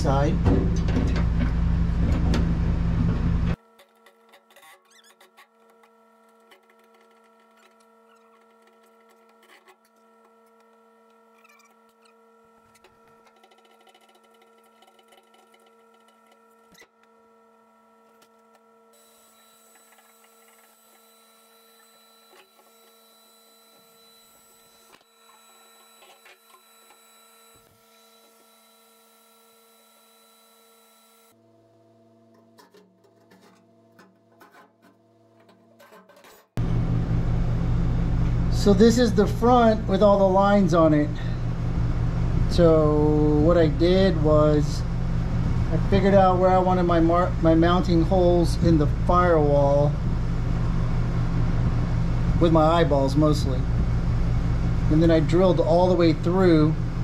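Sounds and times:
faint steady hum: 36.6 - 57.0.

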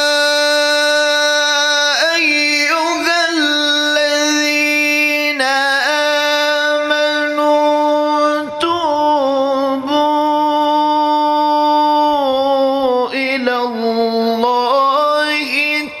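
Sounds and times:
man chanting melodically: 0.0 - 16.0.

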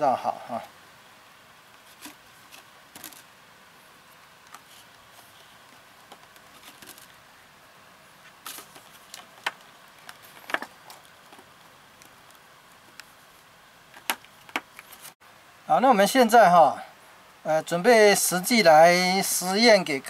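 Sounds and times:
wire twisting clicks and crinkles: 1.8 - 3.3, 4.2 - 7.2, 8.2 - 15.2.

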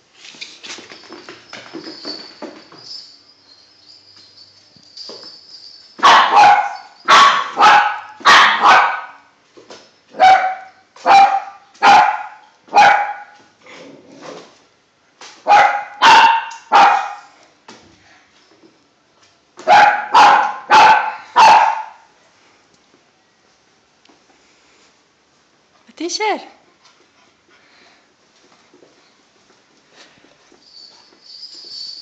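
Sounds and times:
puppy barking: 6.0 - 9.3, 10.1 - 13.4, 15.4 - 17.3, 19.6 - 22.1.

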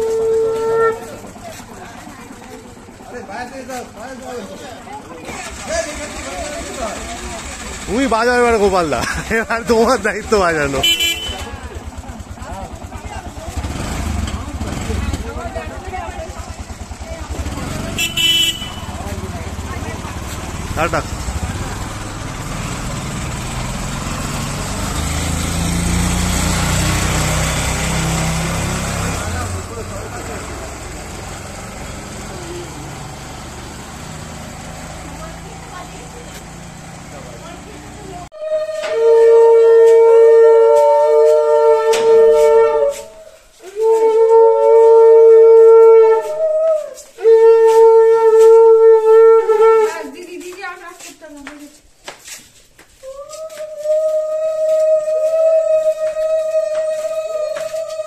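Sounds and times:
auto-rickshaw engine running: 0.0 - 38.4
conch shell blasts: 18.0 - 19.0.

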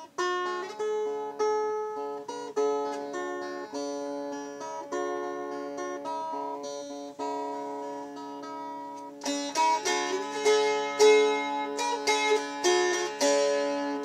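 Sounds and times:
dulcimer strummed slowly: 0.0 - 14.0
dulcimer drone note: 9.2 - 14.0.

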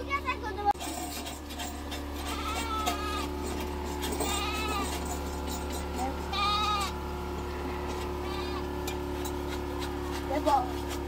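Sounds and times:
sheep or goats bleating: 2.2 - 3.4, 4.1 - 5.0, 6.2 - 8.8.

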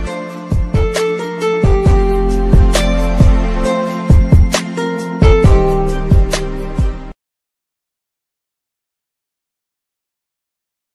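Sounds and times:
ringtone backing music: 0.0 - 7.2.

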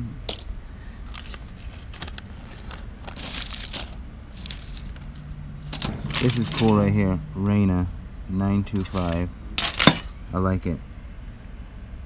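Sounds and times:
paper and plastic crinkling: 1.0 - 5.4.

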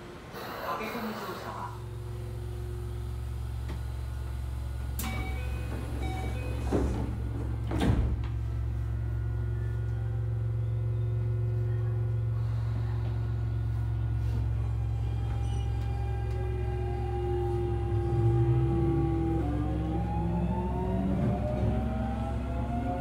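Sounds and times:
train rumble and motor hum: 0.0 - 23.0.

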